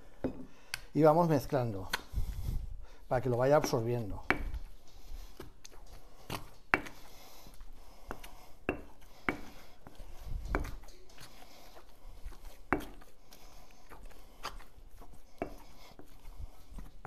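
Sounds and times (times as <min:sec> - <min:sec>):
quiet stirring of mash: 0:00.0 - 0:17.0
wooden pestle knocking stone mortar: 0:03.6 - 0:04.7, 0:08.7 - 0:09.6, 0:10.4 - 0:10.9.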